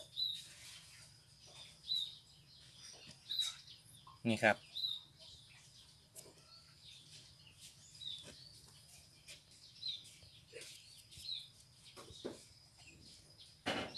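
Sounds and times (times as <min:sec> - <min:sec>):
high bird chirps: 0:00.0 - 0:13.9.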